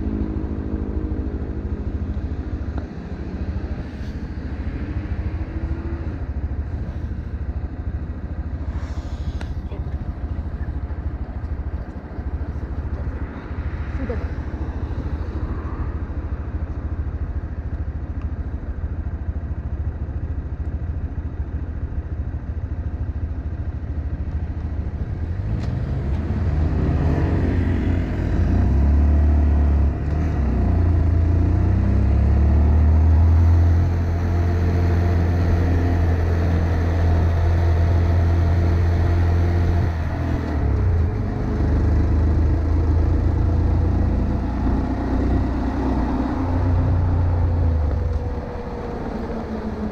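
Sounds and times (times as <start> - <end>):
motorcycle engine accelerating: 22.8 - 49.9.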